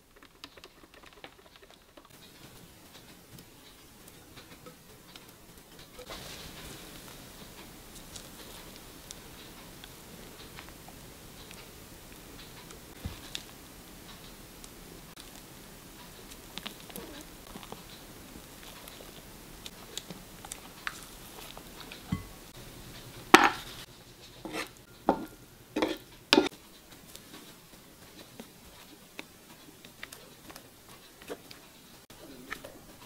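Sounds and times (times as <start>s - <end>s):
spatula scraping frying pan: 23.2s - 31.8s
spatula scraping glass bowl: 24.4s - 25.2s, 25.8s - 26.5s.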